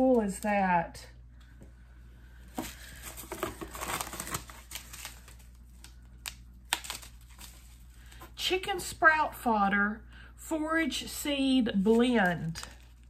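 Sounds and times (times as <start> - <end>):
packaging rustling and crinkling: 2.5 - 8.4, 12.0 - 13.0.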